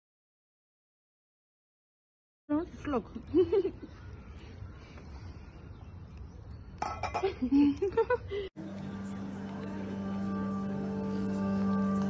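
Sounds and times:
people's voices: 0:08.6 - 0:12.0.

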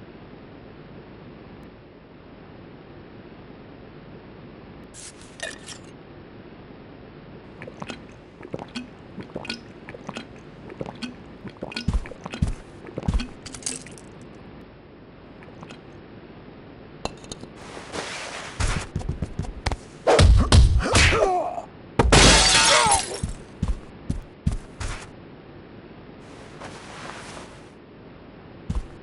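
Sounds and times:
drinking gulps: 0:07.5 - 0:14.2, 0:15.3 - 0:15.9.

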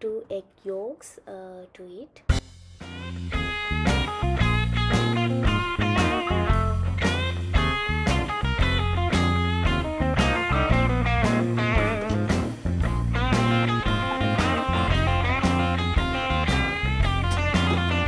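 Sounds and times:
guitar-led rock music: 0:02.3 - 0:18.0.

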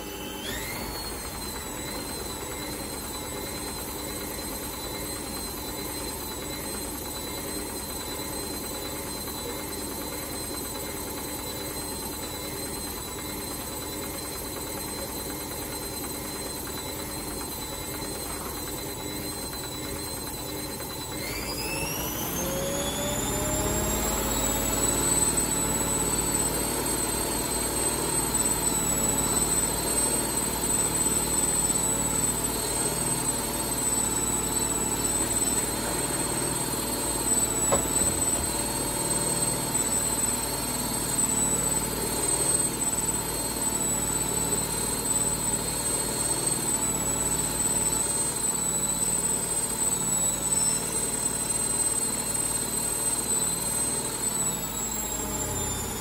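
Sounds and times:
washing machine spinning whine: 0:00.0 - 0:56.0.

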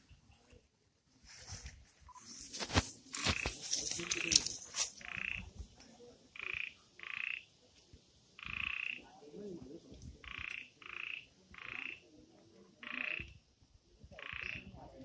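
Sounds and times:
faint high hiss: 0:01.2 - 0:10.8
frog calling: 0:02.1 - 0:05.6, 0:06.3 - 0:07.6, 0:08.4 - 0:09.1, 0:10.2 - 0:12.1, 0:12.8 - 0:13.4, 0:14.2 - 0:14.8.

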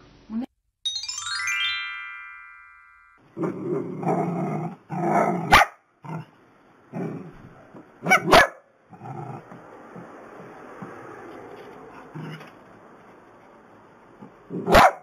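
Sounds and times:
dogs growling: 0:03.4 - 0:05.5, 0:06.9 - 0:07.6, 0:08.9 - 0:10.2
dogs barking: 0:05.2 - 0:05.8, 0:08.0 - 0:08.7, 0:14.6 - 0:15.0.

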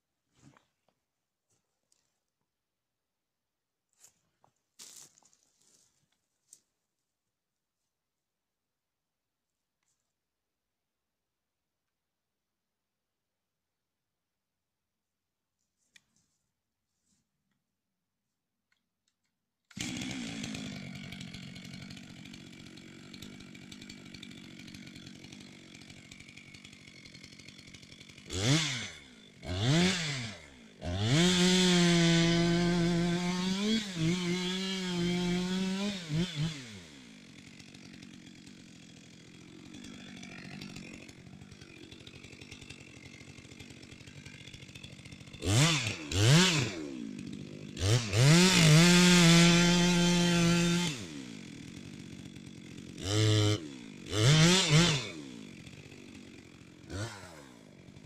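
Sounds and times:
chainsaw revving and cutting: 0:19.7 - 0:58.0.

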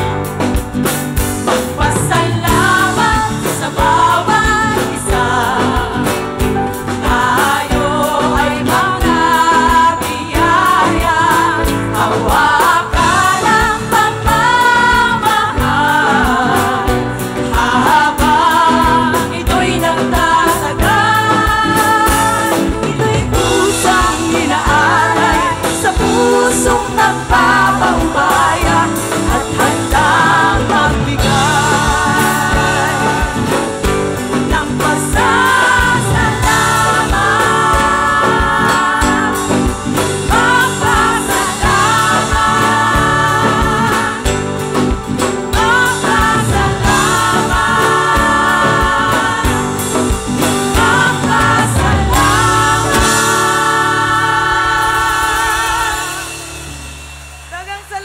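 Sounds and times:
live band music: 0:00.0 - 0:58.0
woman singing lead: 0:01.5 - 0:58.0.

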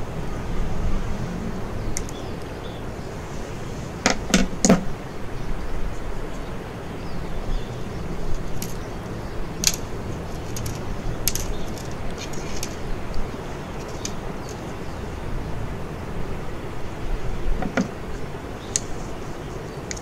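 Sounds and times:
small metal clicks and clinks: 0:09.6 - 0:12.8.

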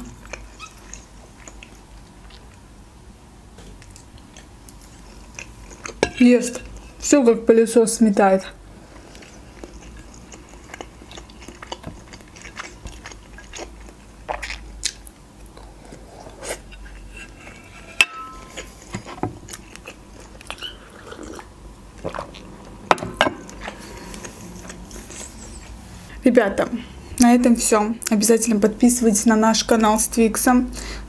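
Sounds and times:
chewing and mouth sounds: 0:00.0 - 0:02.6, 0:03.6 - 0:07.0, 0:08.9 - 0:17.0, 0:18.5 - 0:22.8, 0:23.4 - 0:25.8.

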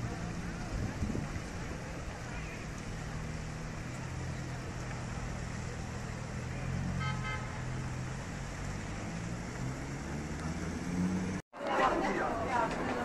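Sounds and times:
traffic engine drone: 0:00.0 - 0:13.0
car horn toot: 0:06.9 - 0:07.8.

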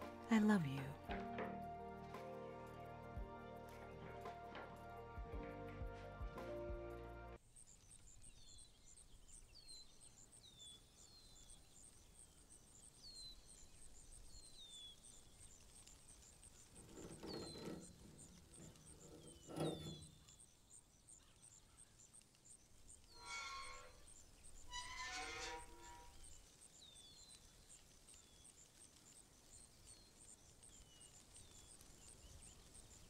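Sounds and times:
heavy hatch lid creaking: 0:16.8 - 0:20.3.

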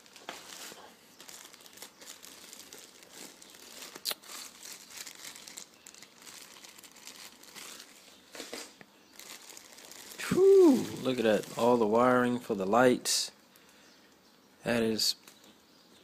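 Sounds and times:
plastic bags crinkling: 0:00.0 - 0:12.3.

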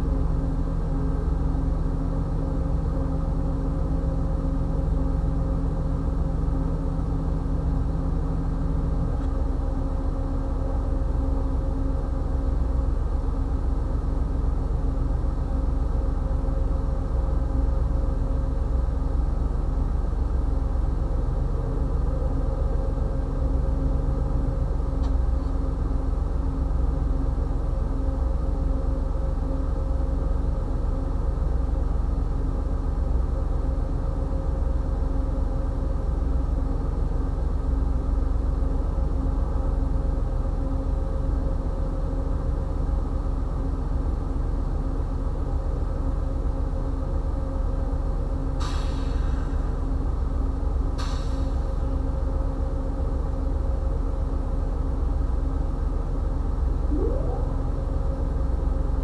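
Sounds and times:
diesel locomotive idling: 0:00.0 - 0:59.0.

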